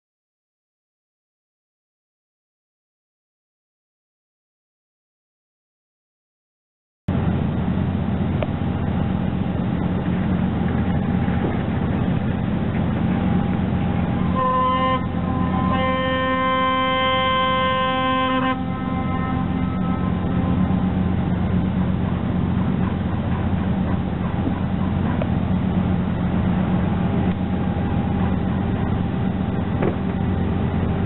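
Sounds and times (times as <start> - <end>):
steady low hum: 7.1 - 31.0
ship's horn blasts: 7.6 - 31.0.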